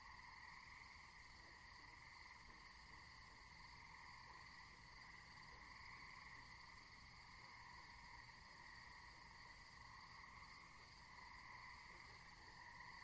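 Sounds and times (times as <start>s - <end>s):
night insects chirping: 0.0s - 13.0s.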